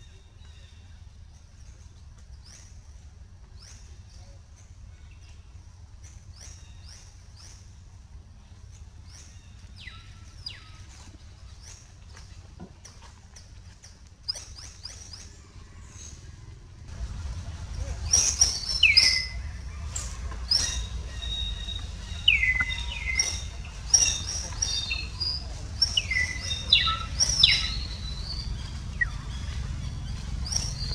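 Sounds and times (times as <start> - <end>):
low rumble: 15.1 - 30.9
high-pitched chirping calls: 17.7 - 30.9.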